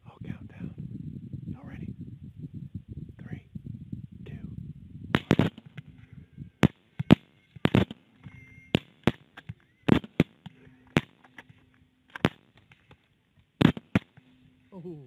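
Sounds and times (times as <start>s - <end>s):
rifle shots: 5.1s - 5.9s, 6.6s - 11.5s, 12.1s - 12.8s, 13.6s - 14.3s.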